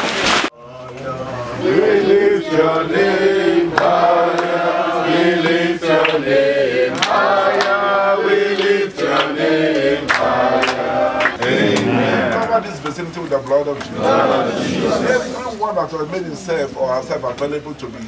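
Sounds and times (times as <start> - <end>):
men and children singing: 1.5 - 12.4, 13.8 - 15.3
hand claps: 3.7 - 4.6, 5.4 - 6.2, 6.9 - 7.9, 8.5 - 13.9.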